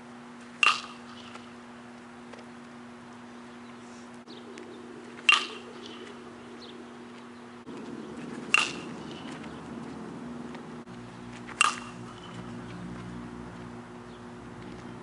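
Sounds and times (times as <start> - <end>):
steady low hum: 0.0 - 15.0
metal bat hitting ball: 0.6 - 1.5, 5.2 - 6.2, 7.7 - 9.6, 11.5 - 12.8.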